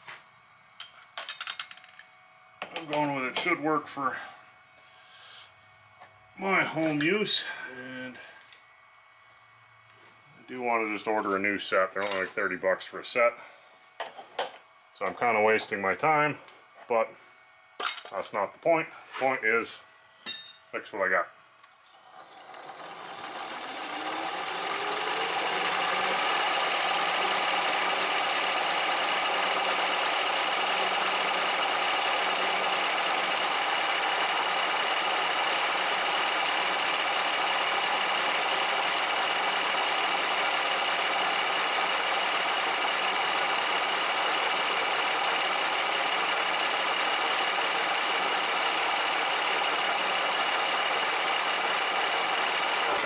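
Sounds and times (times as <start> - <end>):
cutter milling metal: 21.6 - 53.0
milling machine motor whine: 21.6 - 53.0.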